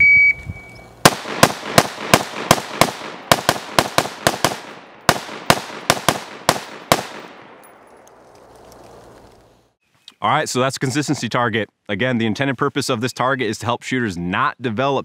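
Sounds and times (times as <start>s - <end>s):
shot timer beep: 0.0s - 0.8s
rifle firing rapid shots: 1.0s - 7.6s.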